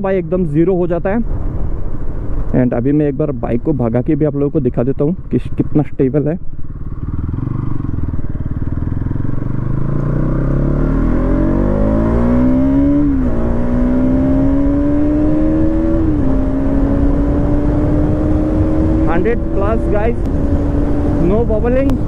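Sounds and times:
motorcycle engine accelerating: 5.5s - 22.0s
wind on microphone: 12.3s - 22.0s.

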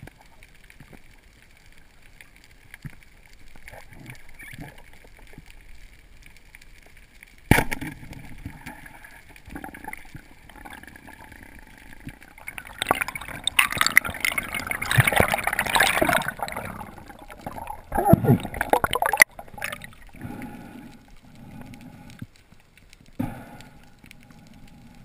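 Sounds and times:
crackling bubbling water: 0.0s - 25.0s
water gurgling and rushing: 8.3s - 21.1s.

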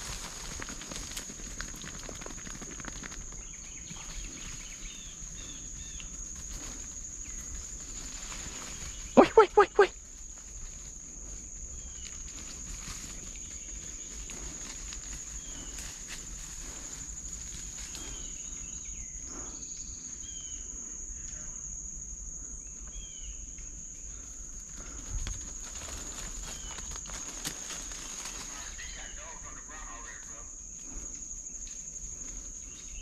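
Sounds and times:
insects droning: 0.0s - 33.0s
footsteps through undergrowth: 3.8s - 9.2s, 10.1s - 18.3s, 24.8s - 29.0s
rustling of brush: 3.8s - 9.2s, 10.1s - 18.4s, 24.8s - 29.0s.

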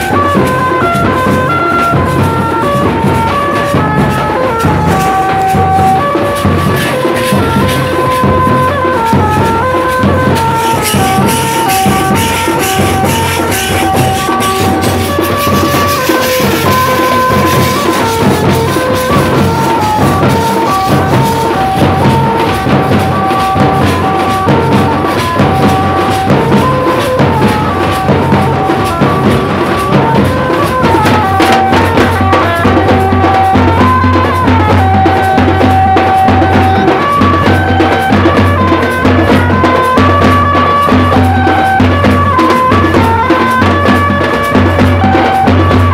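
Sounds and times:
drums beaten fast with sticks: 0.0s - 45.9s
melody instrument playing a tune: 0.0s - 45.9s.

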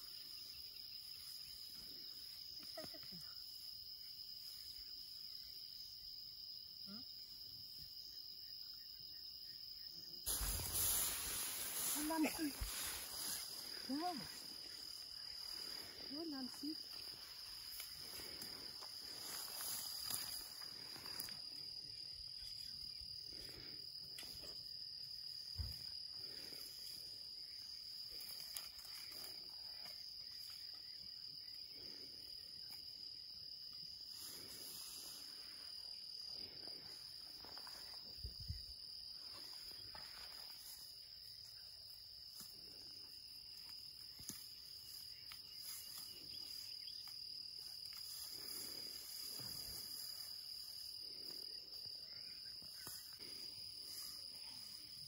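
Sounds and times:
insect chorus drone: 0.0s - 55.0s
grass rustling: 10.3s - 21.7s, 39.2s - 55.0s.

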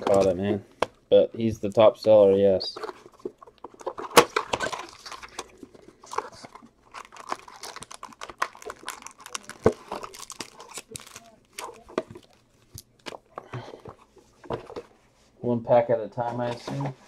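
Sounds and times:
cardboard tearing and crackling: 2.8s - 12.4s.

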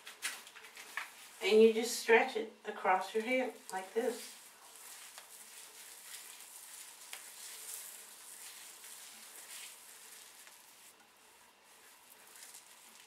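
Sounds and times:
fingers swishing through wet hair: 3.1s - 13.0s.

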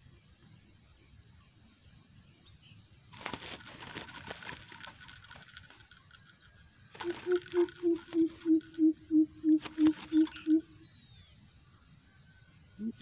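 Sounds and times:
bird flapping in wire trap: 3.1s - 10.6s.

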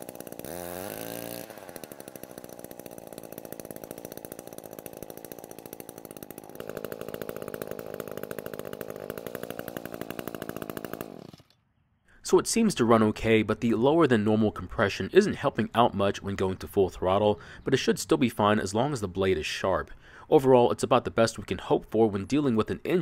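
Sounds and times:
small two-stroke engine running: 0.0s - 11.5s.

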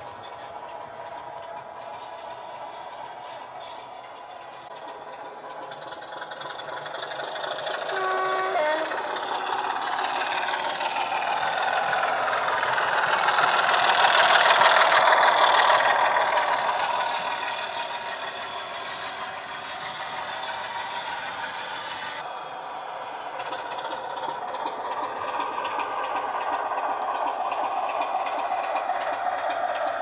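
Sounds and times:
diesel engine: 0.0s - 30.0s
train wheels on track: 0.0s - 30.0s
two-note locomotive horn: 7.9s - 9.1s.

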